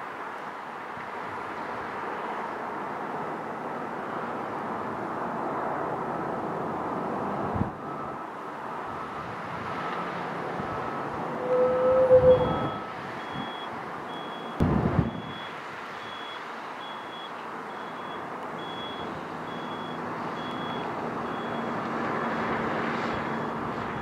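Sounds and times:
bulldozer diesel engine working: 7.3 - 24.0
reversing alarm beeping: 7.7 - 21.7.

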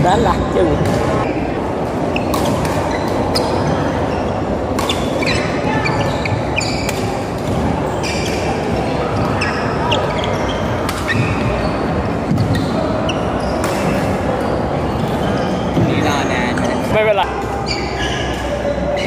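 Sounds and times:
background din of hall: 0.0 - 19.0
shoes squeaking on court floor: 2.2 - 15.8, 17.6 - 19.0.

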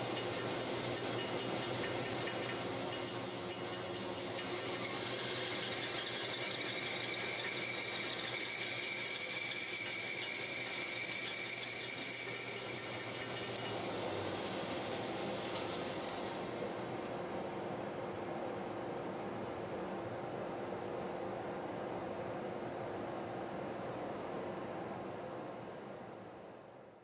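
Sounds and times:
band saw cutting wood: 0.0 - 16.2.

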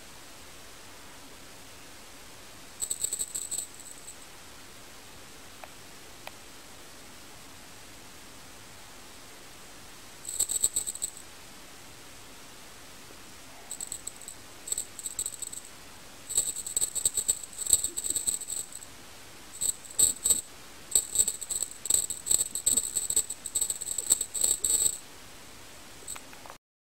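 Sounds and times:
small jingle bell jingling: 2.8 - 4.2, 10.3 - 11.2, 13.7 - 15.7, 16.3 - 18.9, 19.6 - 25.0.

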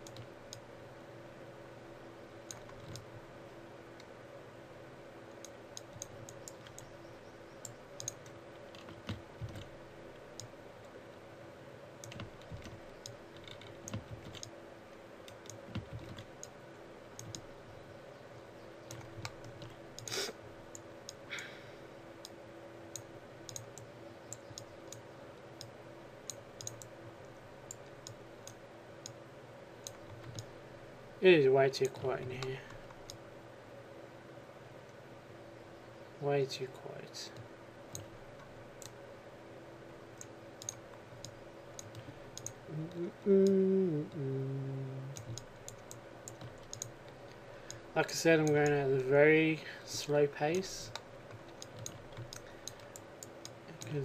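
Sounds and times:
low electrical hum: 0.0 - 54.0
mouse and keyboard clicks: 2.5 - 3.1, 12.0 - 14.5, 17.2 - 17.5, 26.3 - 26.9, 45.1 - 47.8, 50.9 - 54.0.

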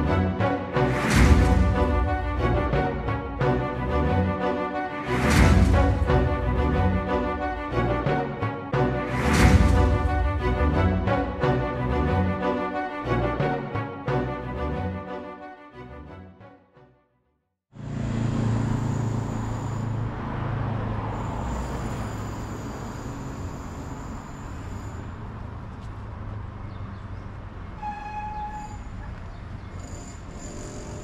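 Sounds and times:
road traffic rumble: 17.7 - 31.0.

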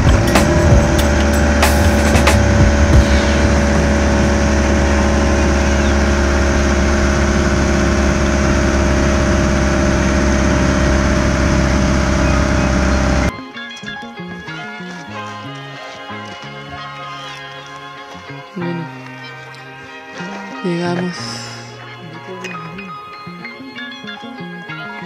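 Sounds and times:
loud engine drone: 0.0 - 13.3
road noise: 0.0 - 13.3.

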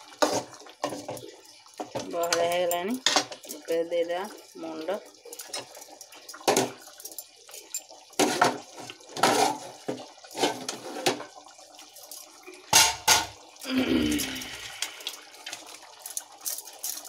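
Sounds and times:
thick gravy bubbling and spluttering: 0.0 - 2.3, 3.7 - 12.7.

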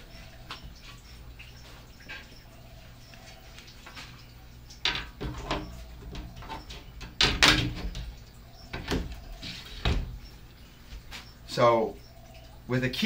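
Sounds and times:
short knocks and clunks: 4.8 - 10.2.

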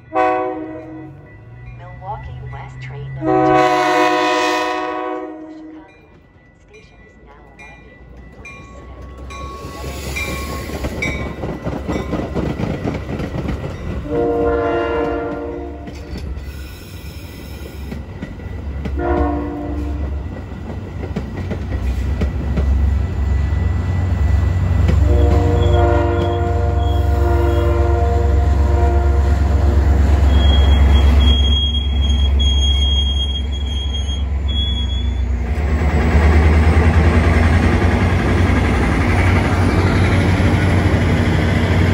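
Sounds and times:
train horn blasts: 0.0 - 1.3, 3.2 - 5.9, 14.0 - 16.1, 18.9 - 20.2, 24.8 - 32.1
train rumble: 0.0 - 41.9
high wheel squeal: 9.4 - 11.2, 30.1 - 35.3.

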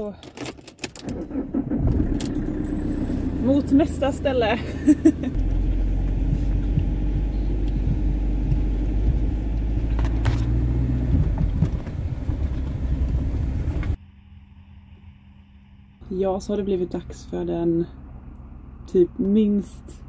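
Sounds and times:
engine and road rumble: 0.0 - 20.0
sharp knocks and rattles: 5.3 - 13.9.

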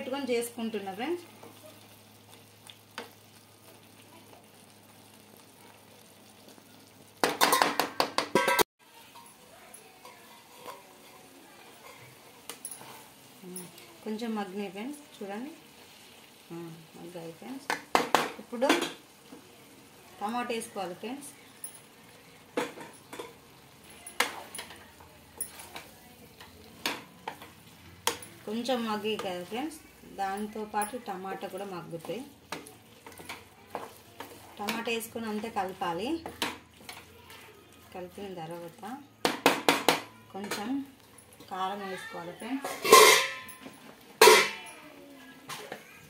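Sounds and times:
faint sizzle: 0.0 - 46.0
spatula scraping a pan: 8.4 - 13.9, 42.6 - 44.8.

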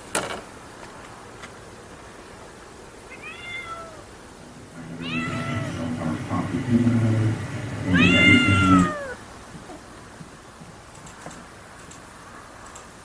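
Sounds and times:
cat meowing: 3.1 - 6.5, 7.8 - 9.8
low steady drone: 4.0 - 10.0.

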